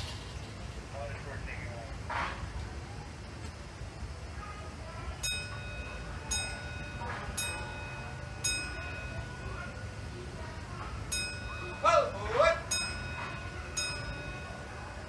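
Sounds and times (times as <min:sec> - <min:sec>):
train rumbling: 0:00.0 - 0:15.0
locomotive bell ringing: 0:05.0 - 0:15.0.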